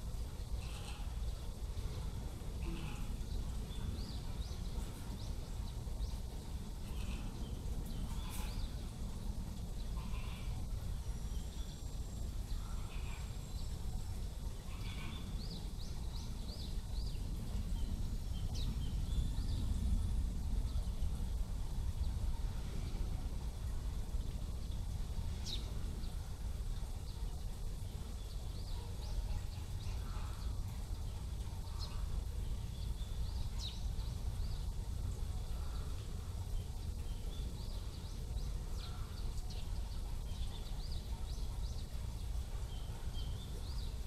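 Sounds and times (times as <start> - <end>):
small birds chirping: 0.0 - 21.3, 21.9 - 44.0.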